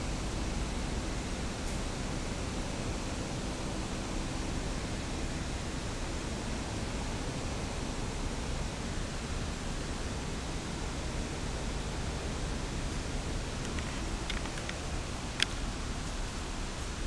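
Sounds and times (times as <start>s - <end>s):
steady rushing background noise: 12.5s - 17.0s.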